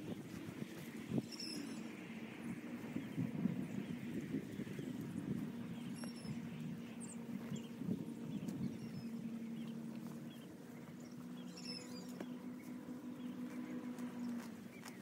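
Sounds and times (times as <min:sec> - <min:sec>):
birds chirping: 0:00.0 - 0:15.0
steady low hum: 0:00.0 - 0:15.0.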